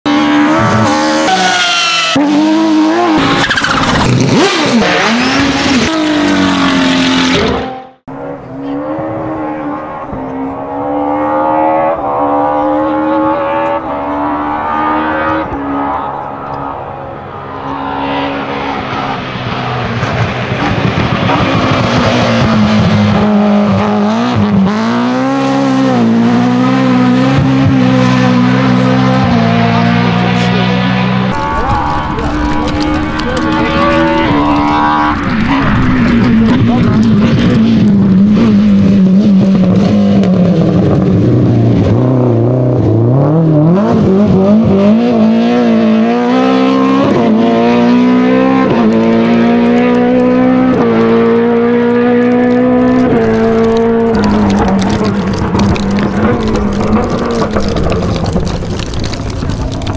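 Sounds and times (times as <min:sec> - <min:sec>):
rally car engine revving: 0:00.0 - 0:59.9.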